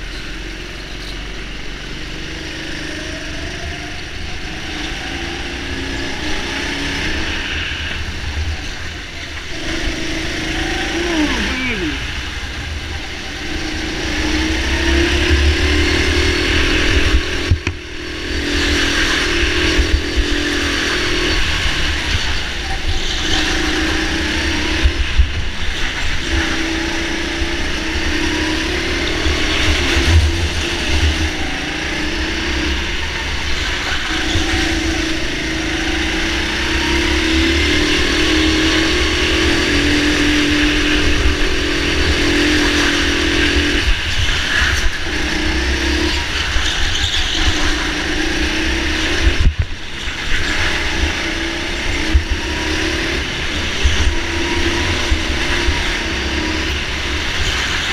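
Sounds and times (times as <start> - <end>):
go-kart engine: 0.0 - 57.9.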